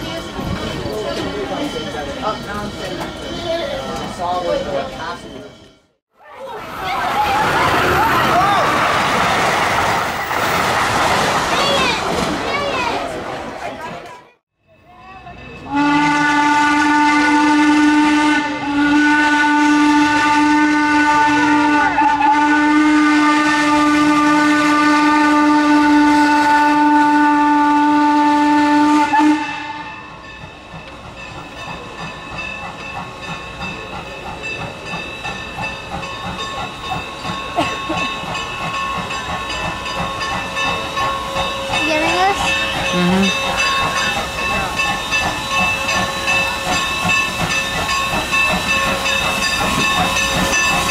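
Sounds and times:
steam locomotive hissing and chuffing: 0:15.2 - 0:50.9
steam locomotive whistle: 0:15.6 - 0:30.1.

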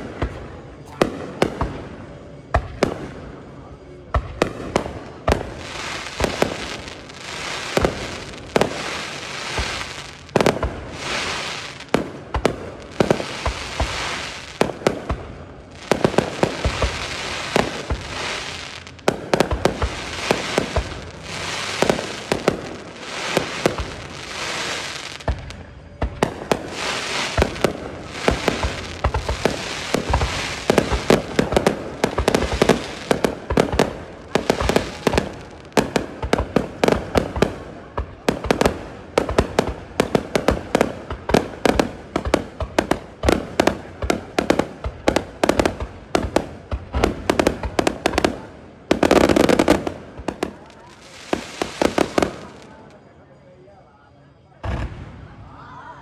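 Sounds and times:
crackle and hiss of sparks: 0:05.1 - 0:52.9
fireworks shells bursting: 0:26.3 - 0:35.6.

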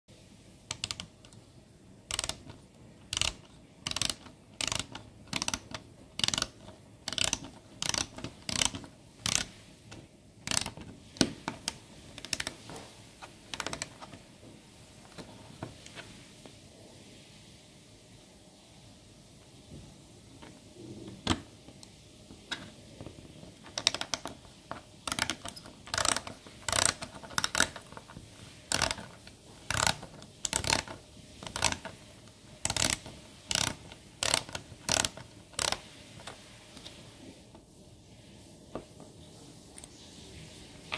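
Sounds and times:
plastic ratchet clicking: 0:00.7 - 0:01.4, 0:02.1 - 0:12.6, 0:13.5 - 0:14.2, 0:23.7 - 0:28.1, 0:28.7 - 0:32.0, 0:32.6 - 0:35.8.

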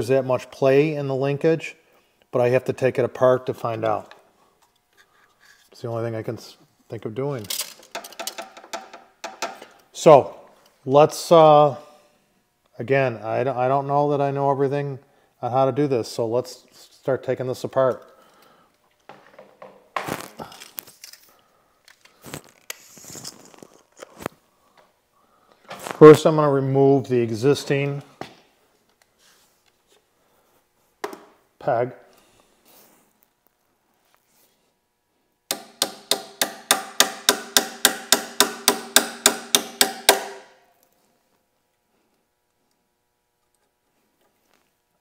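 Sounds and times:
tools clicking and knocking: 0:07.4 - 0:09.7
rustling and crinkling: 0:20.0 - 0:24.4
hammer striking metal: 0:35.5 - 0:40.6.

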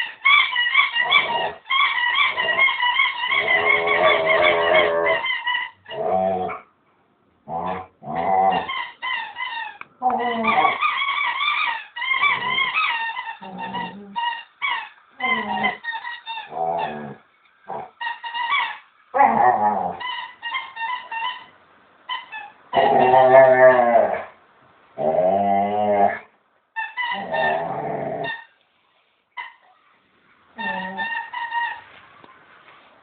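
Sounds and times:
dog whining and yipping: 0:00.0 - 0:06.6, 0:08.5 - 0:17.2
dog howl-like growls: 0:22.8 - 0:24.3.

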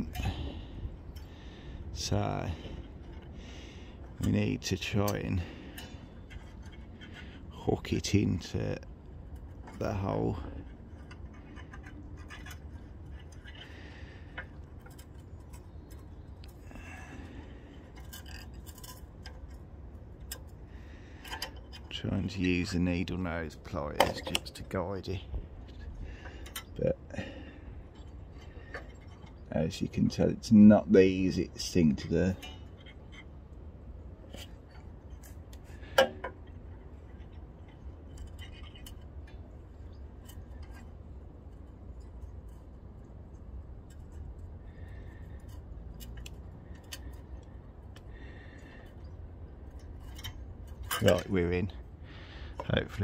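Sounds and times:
metal spring clicking and scraping: 0:00.0 - 0:08.6, 0:09.2 - 0:30.2, 0:34.2 - 0:51.8
low steady hum: 0:00.0 - 0:53.0
steady low rumble: 0:00.0 - 0:53.0.

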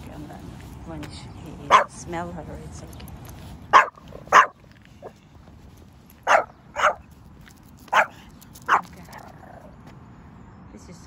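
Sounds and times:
small dog barking: 0:01.7 - 0:02.0, 0:03.7 - 0:04.6, 0:06.2 - 0:07.1, 0:07.9 - 0:09.0.

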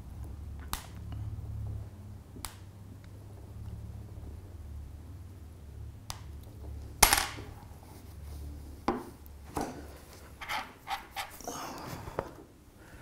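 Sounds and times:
cloth rubbing on glass: 0:09.9 - 0:11.5.

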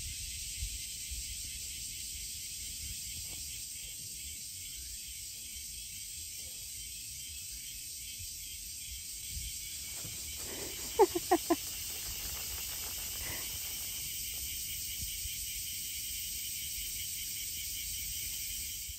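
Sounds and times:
cicadas buzzing: 0:00.0 - 0:18.9
quick falling chirps: 0:09.8 - 0:14.4.

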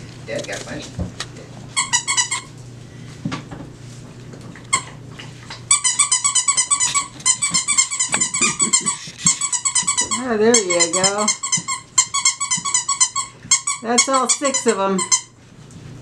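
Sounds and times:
puppy yipping: 0:05.8 - 0:13.8.

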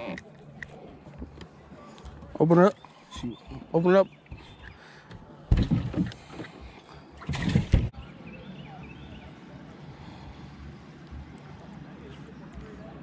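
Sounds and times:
loud bumps with rustling: 0:05.5 - 0:06.5, 0:07.2 - 0:07.9.

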